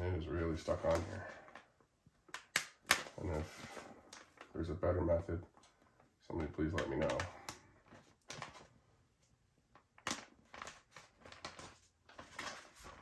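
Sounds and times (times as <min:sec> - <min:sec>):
decal peeling crinkling: 0:09.7 - 0:13.0.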